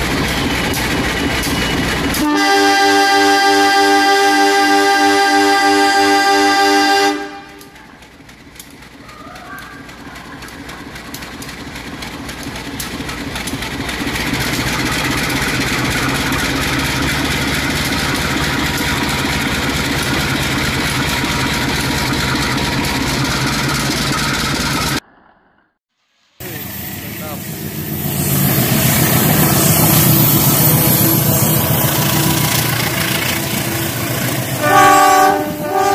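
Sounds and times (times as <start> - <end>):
wheels clicking over rails: 0.0 - 2.2, 7.5 - 25.0.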